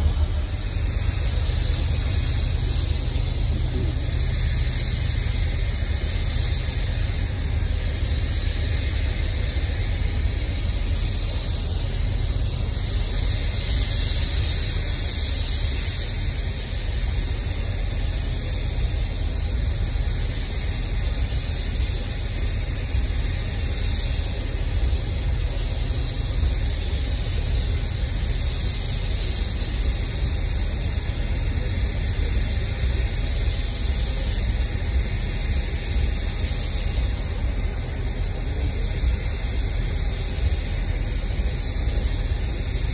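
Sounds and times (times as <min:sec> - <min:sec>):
freight train cars rolling past: 0:00.0 - 0:42.9.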